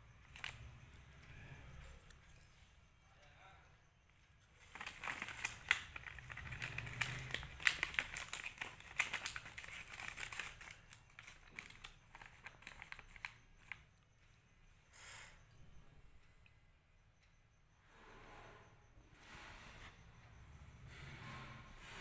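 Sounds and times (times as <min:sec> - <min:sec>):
plastic wrappers crinkling: 0:00.2 - 0:00.7, 0:04.6 - 0:13.8.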